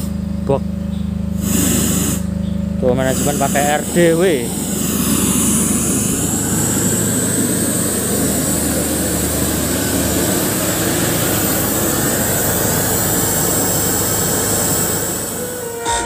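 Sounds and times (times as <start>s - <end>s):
loud music through pa system: 15.7s - 16.0s.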